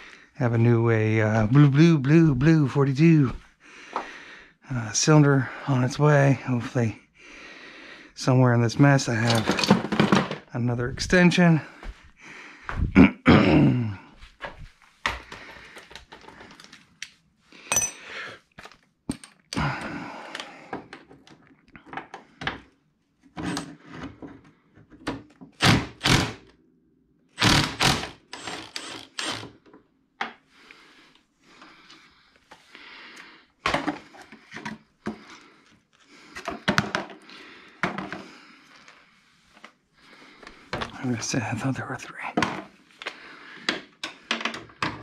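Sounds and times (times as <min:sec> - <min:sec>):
metal tools clanking: 0:09.2 - 0:09.9, 0:17.7 - 0:18.1.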